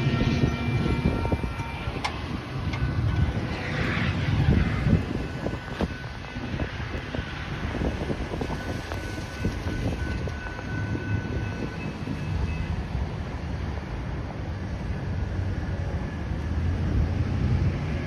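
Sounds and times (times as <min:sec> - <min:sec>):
wind on microphone: 0:00.0 - 0:13.6
distant train rumble: 0:00.0 - 0:18.0.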